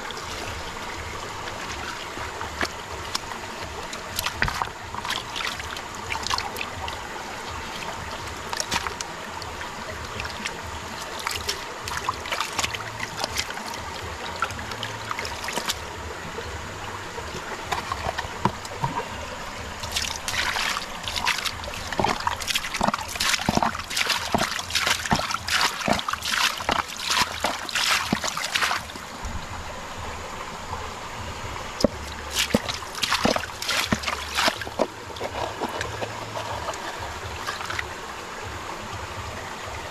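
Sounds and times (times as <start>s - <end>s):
water splashing: 0.0s - 39.9s
water trickling: 0.0s - 39.9s
hands scrubbing and sloshing: 1.4s - 9.1s, 10.1s - 15.8s, 19.8s - 29.0s, 31.8s - 37.9s.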